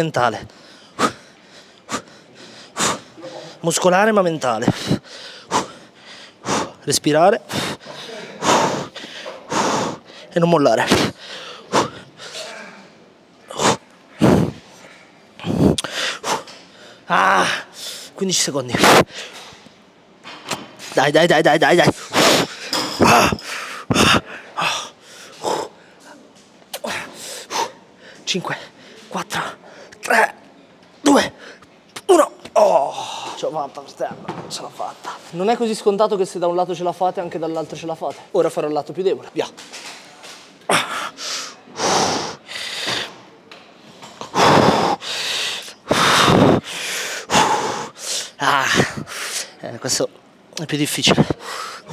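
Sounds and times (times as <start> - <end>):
man breathing hard: 0.5 - 3.6, 4.7 - 6.8, 7.5 - 10.3, 11.0 - 12.6, 13.5 - 18.2, 40.7 - 43.2, 44.2 - 49.6, 51.2 - 51.9
man breathing hard grunting: 7.5 - 10.2, 40.7 - 43.1, 44.3 - 49.4.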